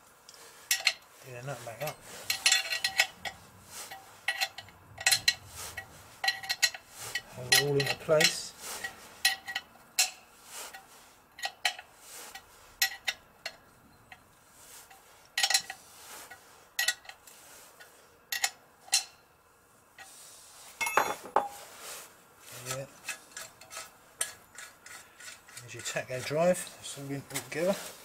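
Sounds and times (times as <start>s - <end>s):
metal engine parts clinking: 1.8s - 5.4s, 6.2s - 8.5s, 9.2s - 10.2s, 20.8s - 21.6s.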